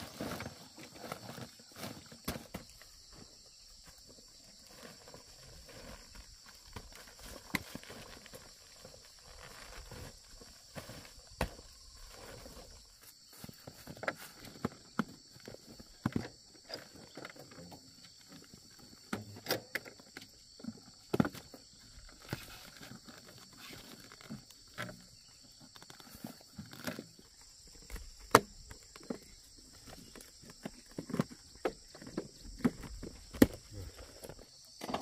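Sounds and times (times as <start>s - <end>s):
rustling of woven sacks: 0.0s - 3.2s, 4.0s - 14.6s.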